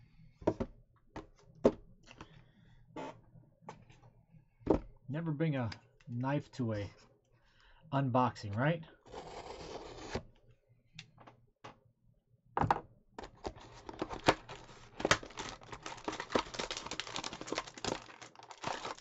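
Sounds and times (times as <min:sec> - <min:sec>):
cardboard ripping and snapping: 0:13.8 - 0:19.0.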